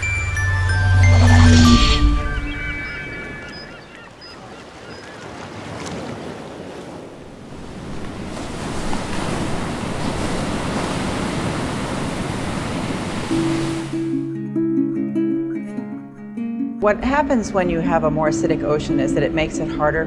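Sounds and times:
ocean waves washing: 0.0s - 14.3s.

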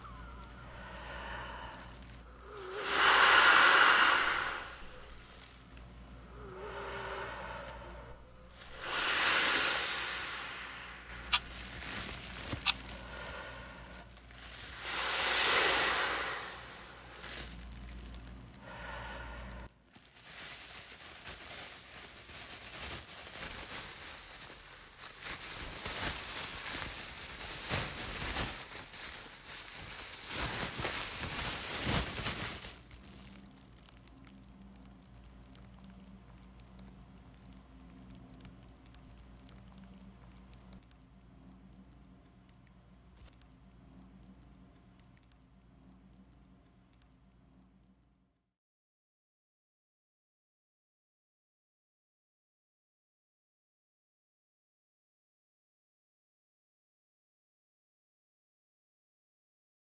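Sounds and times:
plastic bag crinkling: 0.0s - 18.6s, 19.9s - 40.9s
faint room hum: 0.0s - 48.5s.

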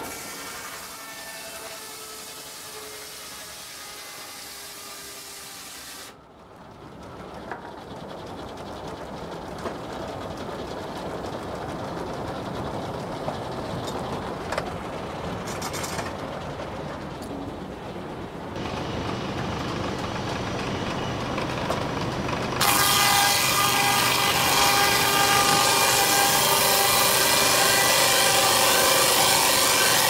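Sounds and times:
sawmill machinery running: 0.0s - 30.0s
dense rattling clatter: 6.7s - 17.2s.

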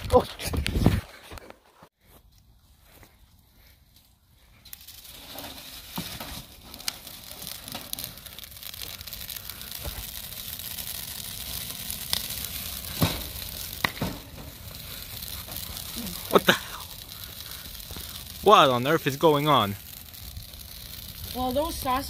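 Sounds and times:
fire crackling and hissing: 0.0s - 22.0s
sharp pops of burning branches: 4.6s - 22.0s.

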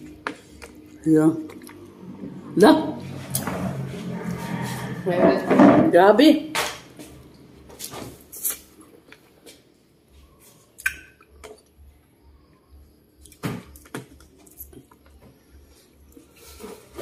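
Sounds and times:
chewing and smacking: 0.0s - 2.0s, 10.4s - 11.9s, 13.2s - 16.3s
mouth clicks: 10.8s - 11.6s.

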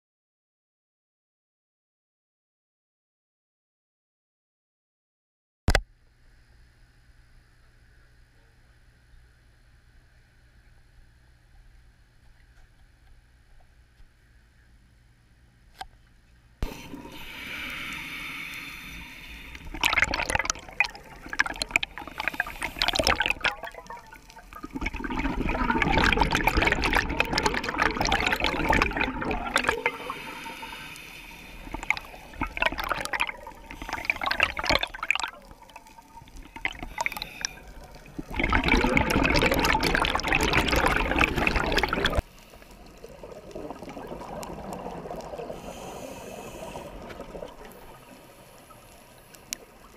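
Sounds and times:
underwater exhaled bubbles gushing: 16.6s - 48.4s
scuba regulator hissing: 16.7s - 19.8s.

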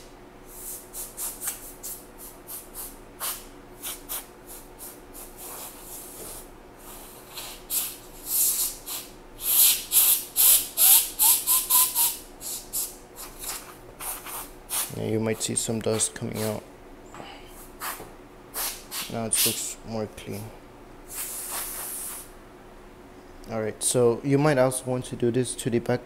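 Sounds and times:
compressed air hissing puffs: 0.5s - 13.4s, 17.5s - 19.6s, 21.1s - 22.3s
rising whistle: 11.2s - 12.2s.

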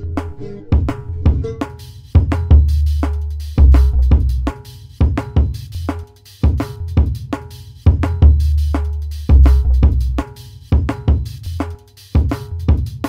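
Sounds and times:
punchy drum hits: 0.8s - 8.6s
deep bass notes: 2.2s - 4.5s, 7.9s - 10.2s.

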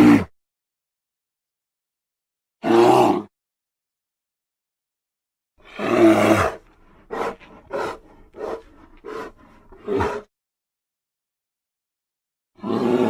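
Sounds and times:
bear roar: 0.0s - 0.3s, 2.6s - 3.3s, 5.6s - 10.3s, 12.6s - 13.0s.

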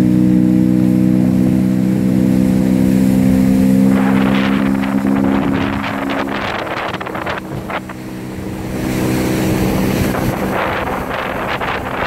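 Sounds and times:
motorboat engine running: 0.0s - 12.0s
water splashing along hull: 0.0s - 12.0s
wind on microphone: 2.4s - 12.0s.

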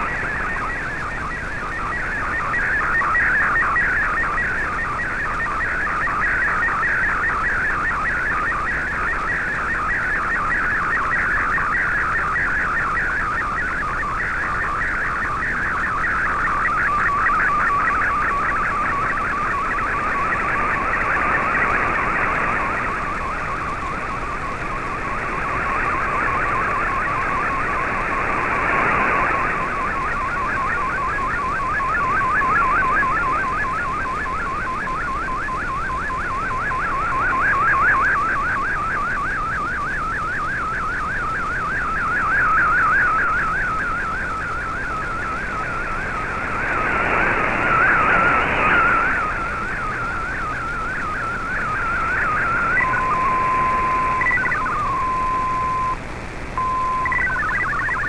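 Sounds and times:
radio static: 0.0s - 58.0s
warbling data tone: 0.0s - 58.0s
steady single tone: 12.8s - 58.0s.

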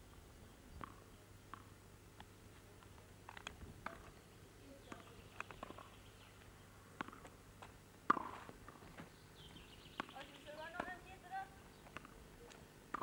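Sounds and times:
tennis ball hits and bounces: 7.0s - 7.3s, 8.1s - 8.8s.

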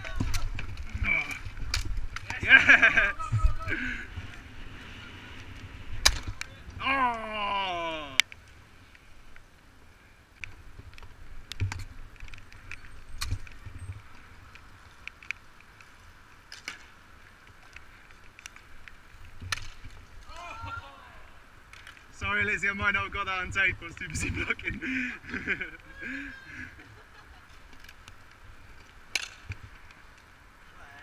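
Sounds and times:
bicycles rolling on asphalt: 0.0s - 31.0s
person shouting: 3.1s - 3.8s, 6.8s - 8.2s, 20.3s - 21.4s, 25.9s - 26.7s.

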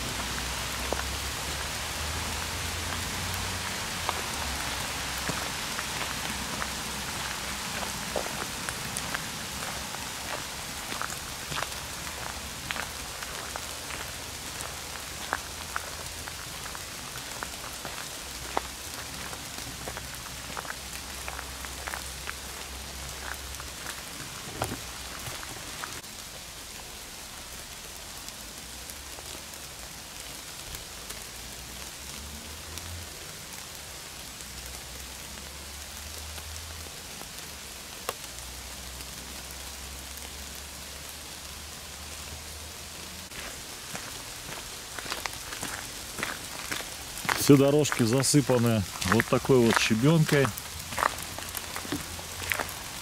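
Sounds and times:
steady rain in forest: 0.0s - 53.0s.

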